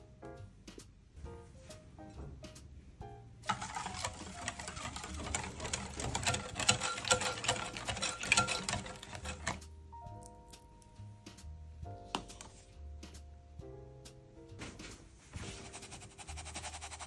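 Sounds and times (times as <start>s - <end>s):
whisk rattling against glass bowl: 3.5s - 9.6s.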